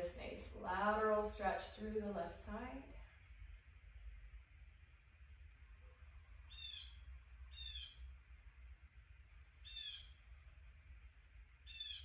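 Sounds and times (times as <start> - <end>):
low steady hum: 0.0 - 12.0
bird calling faintly: 6.4 - 8.1, 9.6 - 10.4, 11.6 - 12.0.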